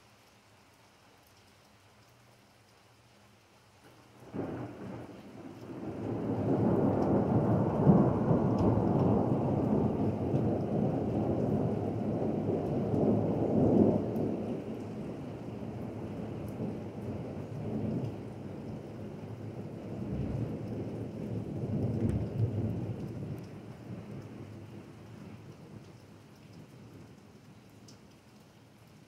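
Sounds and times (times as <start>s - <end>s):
steady rain: 0.0s - 29.0s
thunder rumbling: 4.2s - 26.0s.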